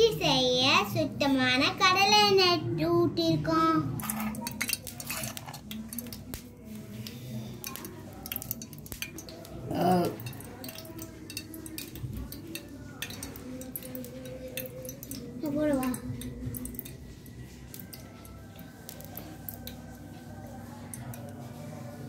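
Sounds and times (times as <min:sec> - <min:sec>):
metal cooking vessels clinking: 0:04.0 - 0:06.4, 0:07.0 - 0:20.0.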